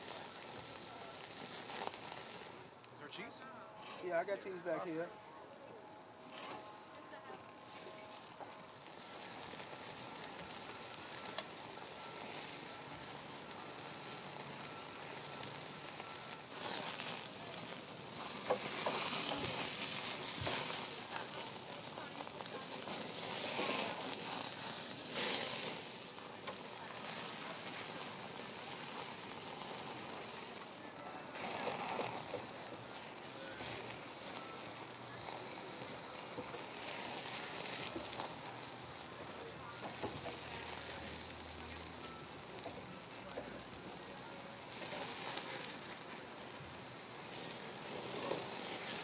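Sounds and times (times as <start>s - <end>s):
meat sizzling on a grill: 0.0s - 49.0s.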